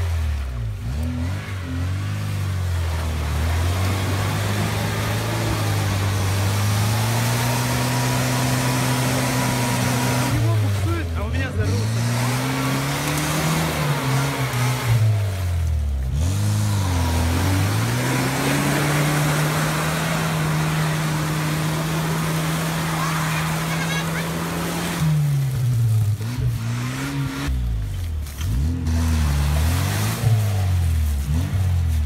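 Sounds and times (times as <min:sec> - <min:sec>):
churning mud and water: 0:00.0 - 0:32.0
off-road engine revving: 0:00.0 - 0:32.0.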